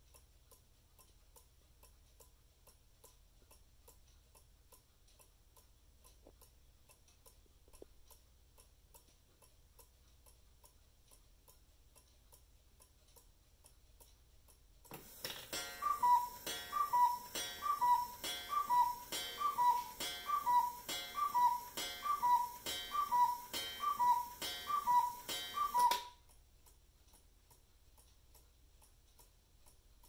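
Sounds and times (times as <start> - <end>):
clock mechanism click: 0.0 - 30.0
faint clock ticking: 0.0 - 30.0
cuckoo clock call: 14.9 - 26.3.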